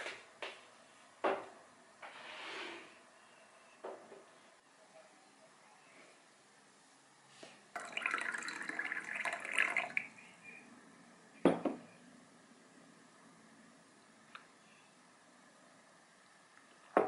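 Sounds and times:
liquid poured into a glass: 7.8 - 10.2.

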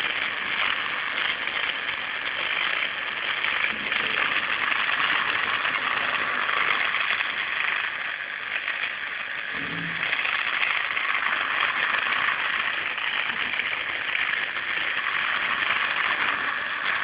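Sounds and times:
electric motor whirring: 0.0 - 17.0
short low-pitched sound: 9.5 - 10.3.

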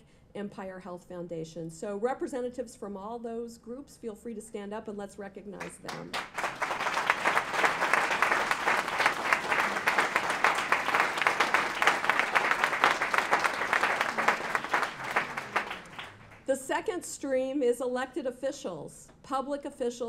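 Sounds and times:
audience applauding: 5.7 - 16.5.

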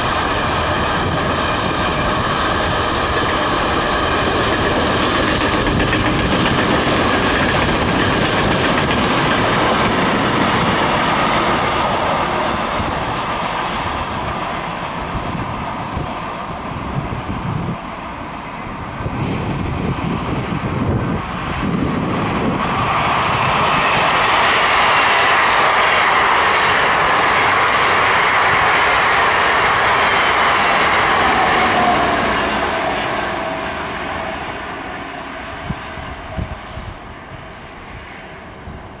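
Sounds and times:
train passing at speed: 0.0 - 39.0.

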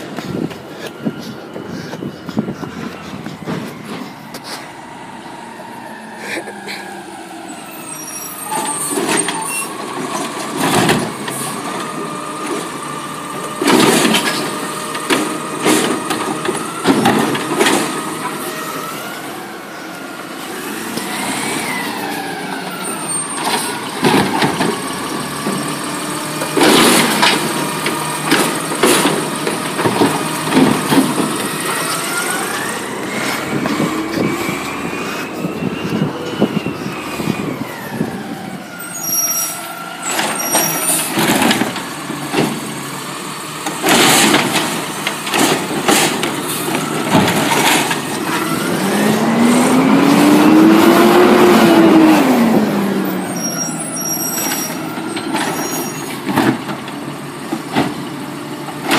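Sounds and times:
garbage truck engine: 0.0 - 58.9
metal clanks and bangs: 26.4 - 31.8, 43.7 - 48.4.

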